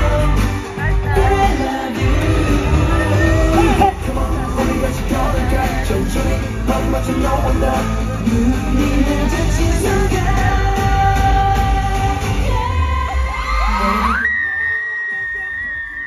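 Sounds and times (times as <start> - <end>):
male vocals: 0.0 - 12.6
pop music over loud pa: 0.0 - 16.0.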